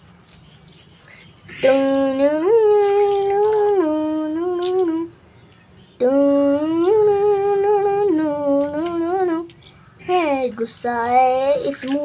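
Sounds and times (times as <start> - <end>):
person humming a tune: 1.5 - 5.1, 6.0 - 9.6.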